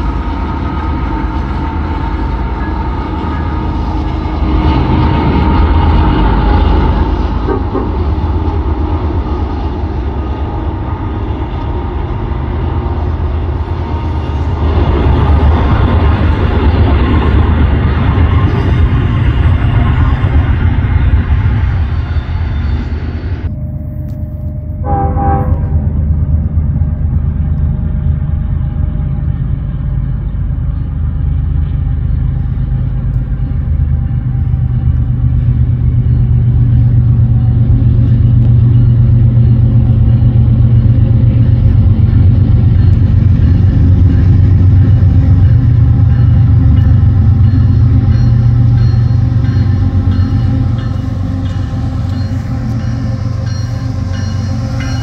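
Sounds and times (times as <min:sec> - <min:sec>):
locomotive engines rumbling: 0:00.0 - 0:55.0
train rolling past: 0:00.0 - 0:55.0
train horn toot: 0:21.7 - 0:27.1.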